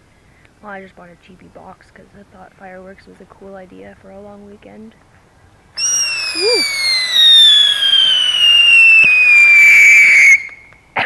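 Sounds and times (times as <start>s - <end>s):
firework spraying sparks: 5.8s - 10.6s
loud falling whistle: 5.8s - 10.6s.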